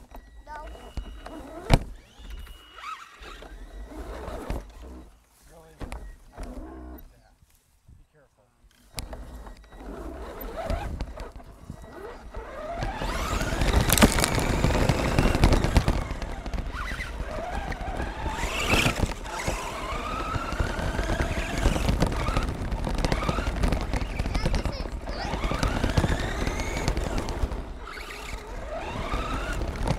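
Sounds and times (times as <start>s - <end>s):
toy truck motor whine: 0.0s - 5.2s, 8.8s - 29.9s
tyres crunching on gravel: 12.0s - 29.9s.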